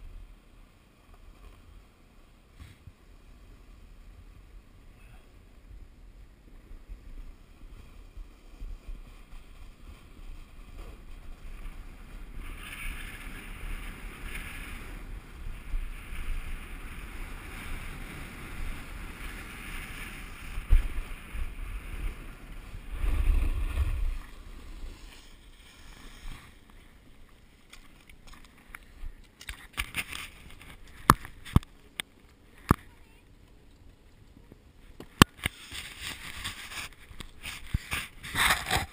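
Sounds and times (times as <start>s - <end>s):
wind buffeting microphone: 5.5s - 25.4s
skis scraping over snow: 6.6s - 38.9s.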